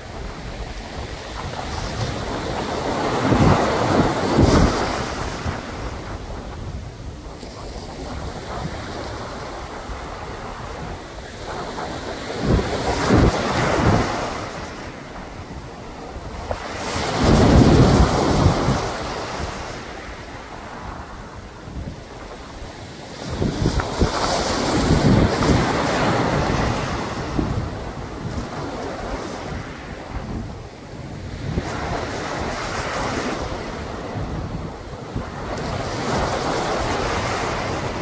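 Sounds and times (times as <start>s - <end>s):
waves breaking on rocky shore: 0.0s - 38.0s.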